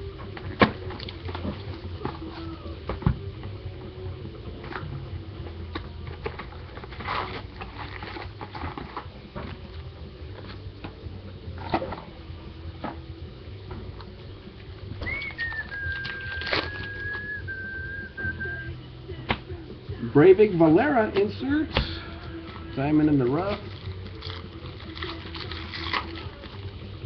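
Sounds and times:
plastic shrink wrap crinkling: 15.1s - 17.4s, 23.3s - 26.7s.

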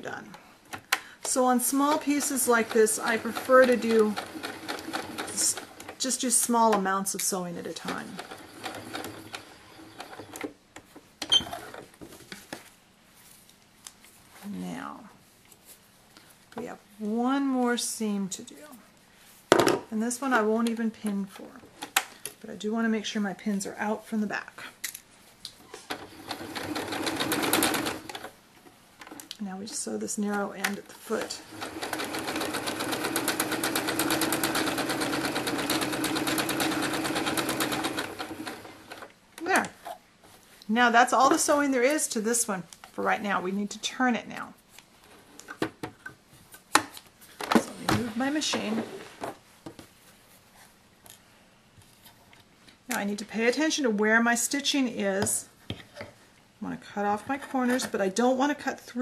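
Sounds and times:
sewing machine stitching: 1.8s - 6.0s, 7.8s - 10.5s, 25.8s - 28.3s, 31.2s - 39.1s.

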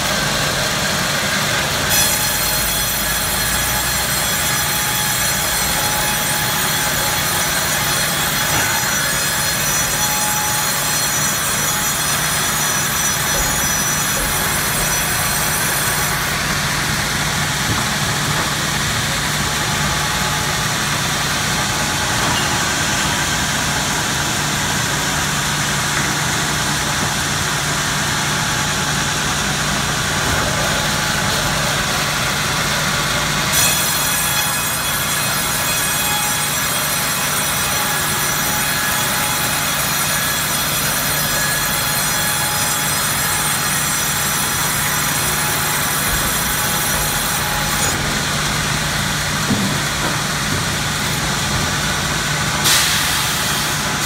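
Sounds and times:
band saw whining through log: 0.0s - 54.0s
sawmill humming: 0.0s - 54.0s.

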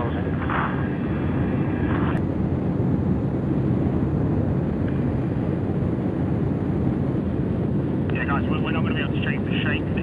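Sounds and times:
radio voice: 0.0s - 0.9s, 8.1s - 10.0s
aircraft roar in flight: 0.0s - 10.0s.

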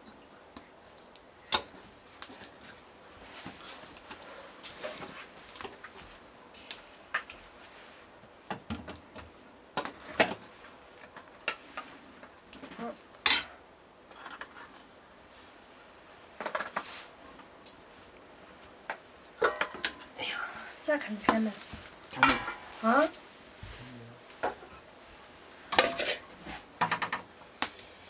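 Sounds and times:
metal spoon clinking on plates: 25.8s - 26.2s.

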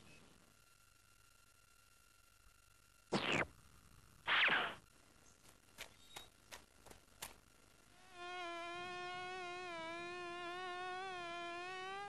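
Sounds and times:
cartoon insect buzzing: 3.1s - 3.5s, 4.2s - 4.8s, 7.9s - 12.0s.

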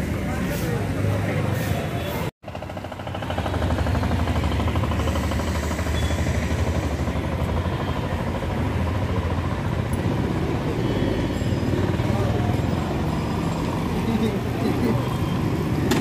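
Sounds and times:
street noise: 0.0s - 16.0s
small engine idling: 2.4s - 14.1s.

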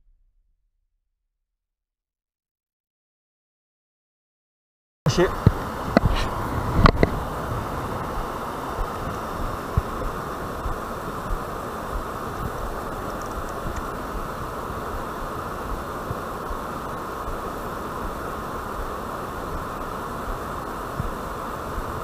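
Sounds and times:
river water rushing: 5.1s - 22.0s
wind rumble on microphone: 5.1s - 22.0s.

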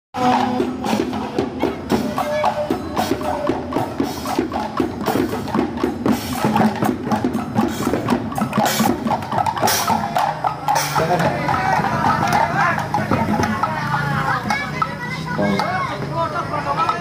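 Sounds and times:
hand percussion drumming: 0.2s - 17.0s.

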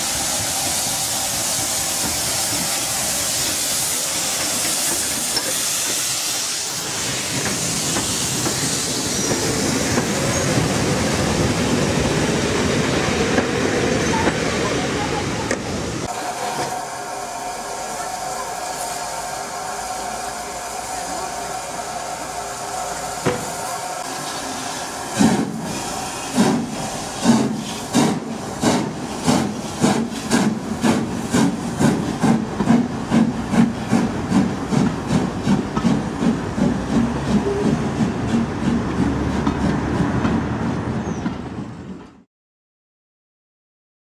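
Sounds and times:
steam locomotive exhaust chuffs: 0.0s - 11.6s, 16.0s - 40.6s
steam hissing: 0.0s - 40.1s.

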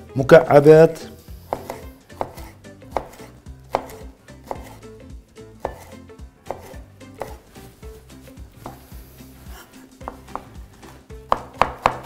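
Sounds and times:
knife knocking on cutting board: 10.0s - 10.5s, 11.3s - 12.0s.

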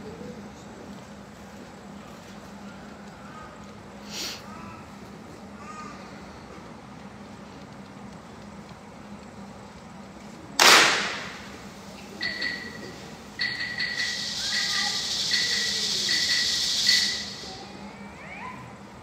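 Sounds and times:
high ringing ping: 12.2s - 17.6s.

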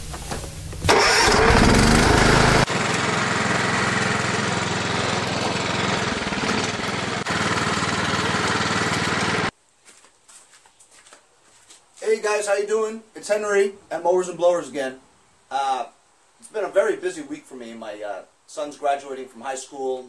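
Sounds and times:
lawn mower engine running: 0.8s - 9.5s.

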